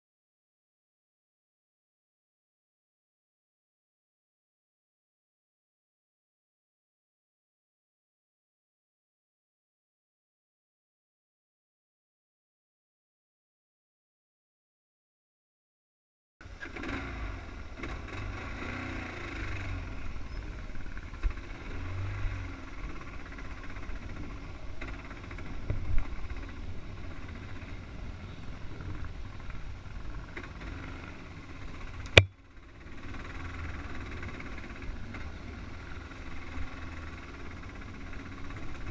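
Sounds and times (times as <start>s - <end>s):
dirt bike engine low revs: 16.4s - 38.9s.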